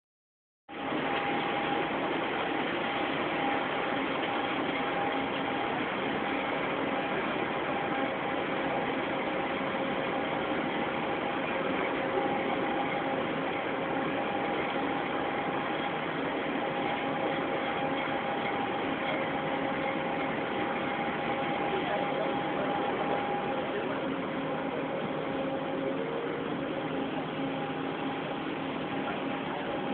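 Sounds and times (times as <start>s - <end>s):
faint steady whine: 0.7s - 29.9s.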